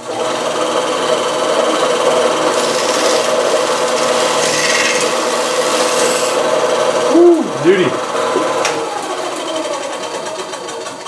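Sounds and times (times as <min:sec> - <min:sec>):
bandsaw motor hum: 0:00.0 - 0:11.0
razor blade scraping tape: 0:02.4 - 0:06.4.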